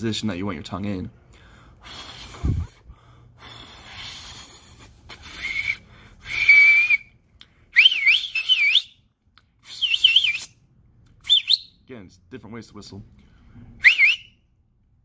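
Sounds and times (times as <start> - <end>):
breathy rushes of air: 1.6 - 6.4
man whistling: 5.1 - 10.6, 11.2 - 11.8, 13.8 - 14.4.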